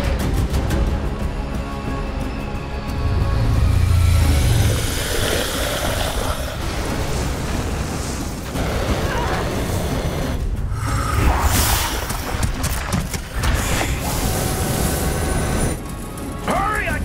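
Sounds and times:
spacecraft thrusters roaring: 3.0s - 12.3s.

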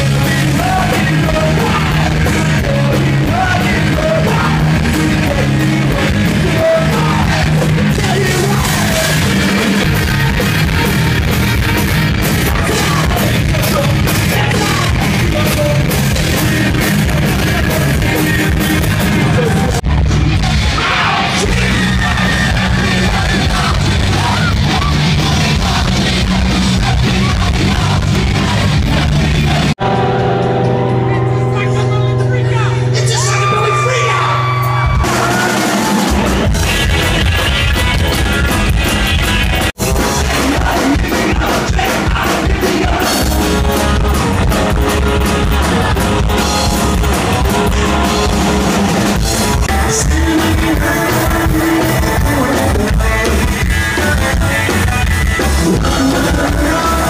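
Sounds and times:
rock band playing: 0.0s - 57.0s
shouted singing: 20.5s - 29.8s, 33.0s - 57.0s.

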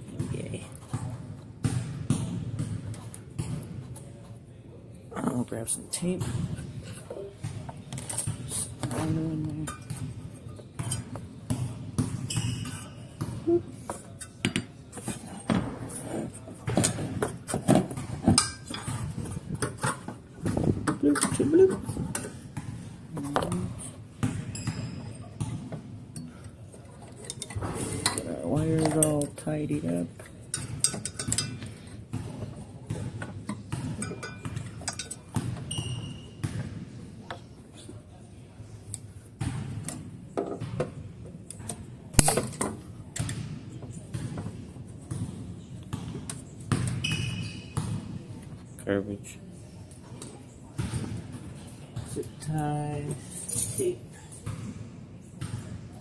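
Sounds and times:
tools and parts clinking: 16.8s - 20.2s, 26.2s - 29.3s, 30.2s - 31.7s, 33.5s - 36.0s.

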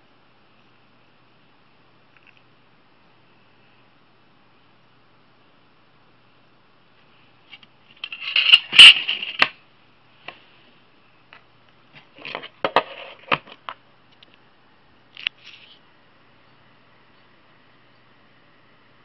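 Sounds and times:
metal casing scraping and clicking: 7.5s - 9.6s.

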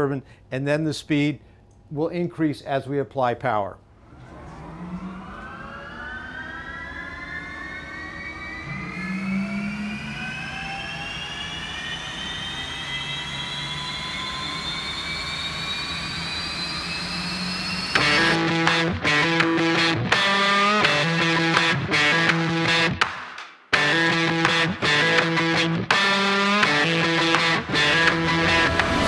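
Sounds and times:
low hum: 3.8s - 23.0s, 23.8s - 29.0s
gas turbine whine rising: 3.8s - 29.0s
guitar rock music: 18.0s - 29.0s.

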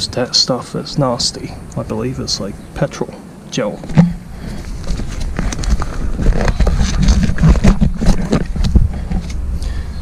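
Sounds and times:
clicks knocks and scrapes: 3.9s - 9.4s.

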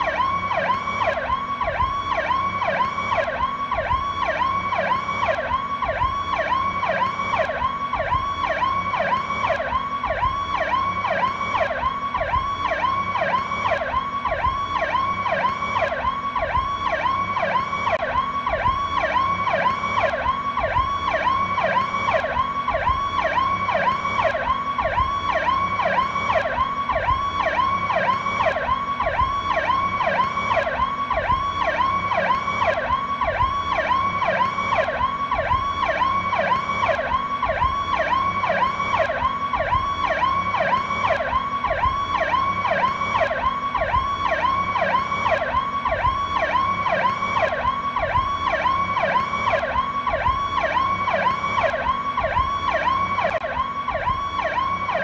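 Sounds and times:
police siren wailing: 0.0s - 55.0s.

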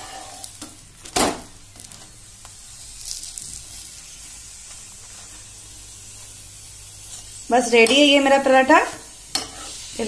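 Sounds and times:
metal spatula scraping: 0.0s - 0.5s, 9.3s - 10.0s
flatbread sizzling in oil: 0.0s - 10.0s.

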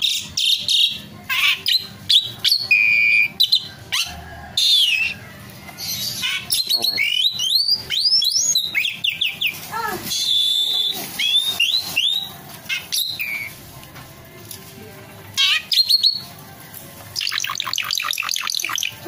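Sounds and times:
starling singing whistles and chirps: 0.0s - 5.2s, 5.8s - 13.6s, 15.4s - 16.3s, 17.2s - 19.0s.

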